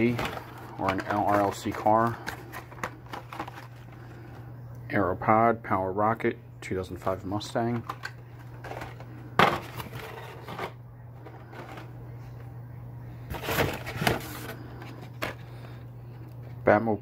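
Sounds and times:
plastic and card clattering: 0:00.0 - 0:04.0, 0:07.0 - 0:12.0, 0:13.3 - 0:15.8
steady low hum: 0:00.0 - 0:17.0.

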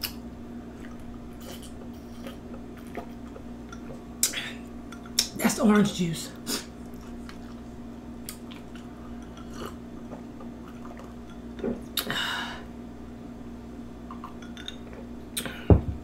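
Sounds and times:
person sipping and swallowing: 0:00.7 - 0:05.2, 0:08.3 - 0:12.2, 0:14.1 - 0:15.7.

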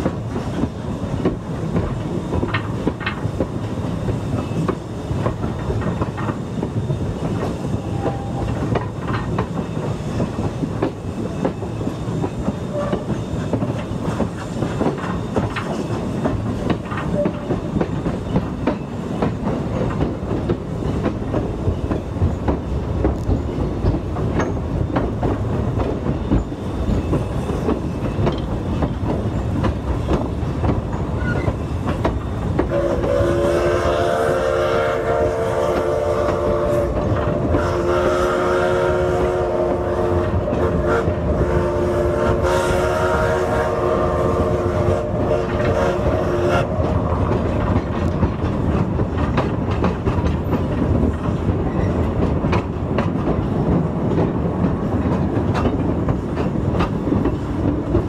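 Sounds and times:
train cars clickety-clack on rails: 0:00.0 - 0:58.0
steam locomotive whistle: 0:07.8 - 0:08.5, 0:12.6 - 0:13.1, 0:32.7 - 0:46.9.

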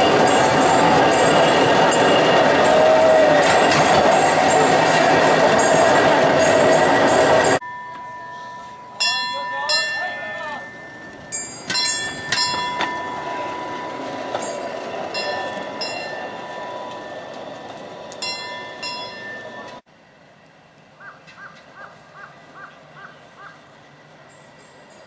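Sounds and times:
steel wheels rumbling on track: 0:00.0 - 0:08.1, 0:08.8 - 0:19.8.

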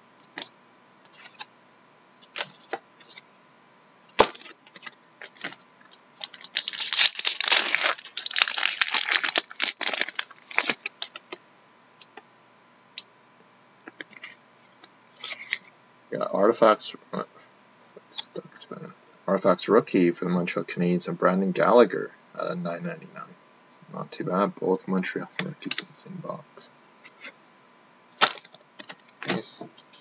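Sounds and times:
crinkly plastic rustling: 0:04.2 - 0:11.4.

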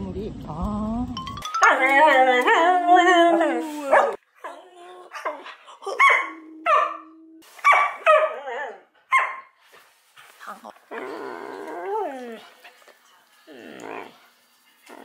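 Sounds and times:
dog barking and yipping: 0:01.6 - 0:07.0, 0:07.6 - 0:09.6.

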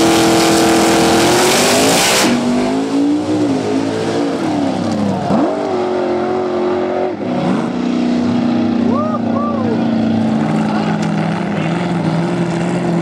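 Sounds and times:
loud rushing noise: 0:00.0 - 0:04.8
drag car engines revving: 0:00.0 - 0:13.0.

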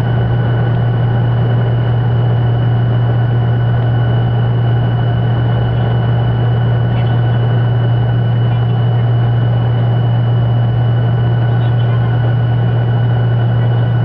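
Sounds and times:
jet engines droning with high whine: 0:00.0 - 0:14.0
rushing rumble of rolling aircraft: 0:00.0 - 0:14.0.

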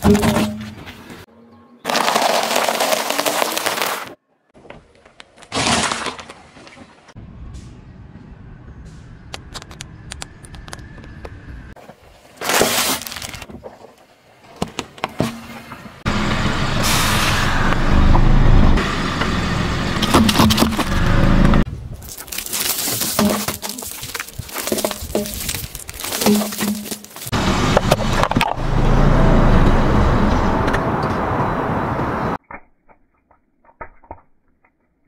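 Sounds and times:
tyre crushing sweets: 0:01.9 - 0:04.2, 0:12.4 - 0:13.5, 0:21.9 - 0:27.3
tyre rumbling on asphalt: 0:01.9 - 0:04.2, 0:20.0 - 0:29.1.

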